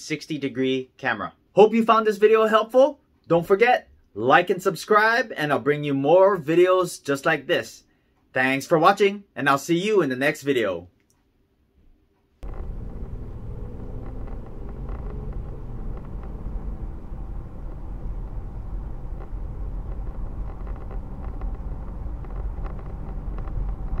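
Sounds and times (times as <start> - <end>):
car engine and road rumble: 12.4 - 24.0.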